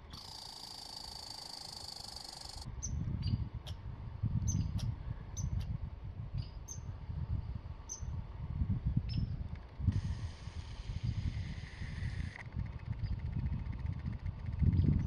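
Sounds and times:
steady high buzz: 0.0s - 2.8s, 9.8s - 14.2s
small animal chirps: 0.1s - 3.4s.

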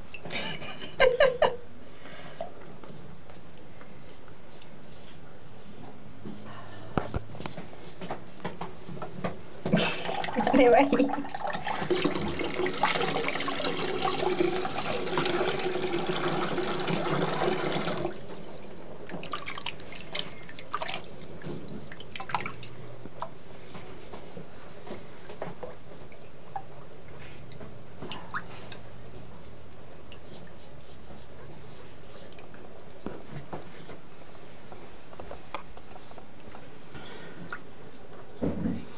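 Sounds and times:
tap running into basin: 9.7s - 18.3s.

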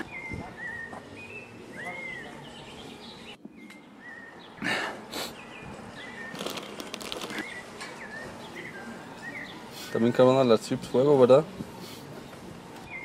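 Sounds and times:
small birds chirping: 0.0s - 10.4s.

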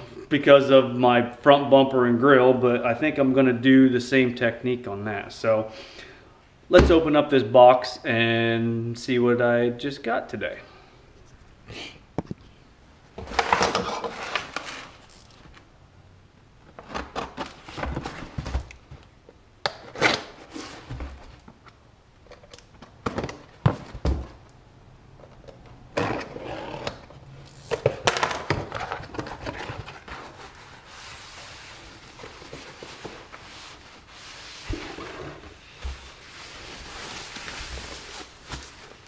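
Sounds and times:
packaging rustling and tearing: 13.3s - 15.5s, 27.5s - 34.8s, 35.8s - 39.0s.

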